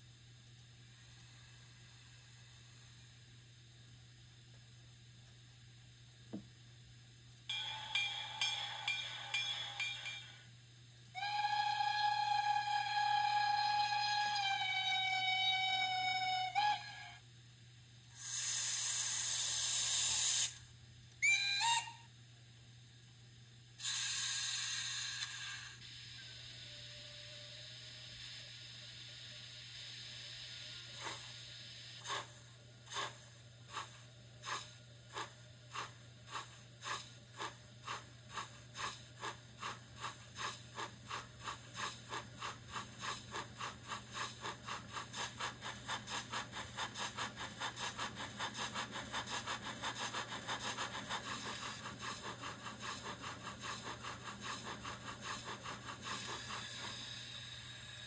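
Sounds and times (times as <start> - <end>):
faint steady hiss: 25.1 - 41.0
steam locomotive chuffing: 26.7 - 58.0.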